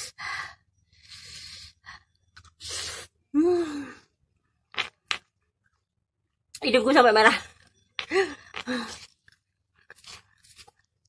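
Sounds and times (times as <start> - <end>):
person gasping and sighing: 3.3 - 4.1.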